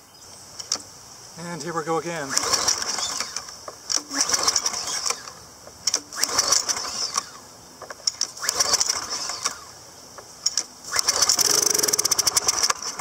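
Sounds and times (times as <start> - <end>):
engine turning over: 2.3 - 7.4, 8.0 - 9.8, 10.5 - 13.0
starter rope ratcheting: 2.3 - 9.7, 10.4 - 13.0.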